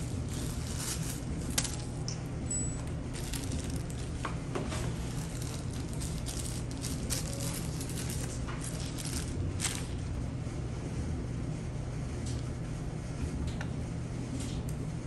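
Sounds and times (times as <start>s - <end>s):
plastic wrap crinkling: 0.0s - 2.2s, 2.8s - 10.2s
steady low hum: 0.0s - 15.0s.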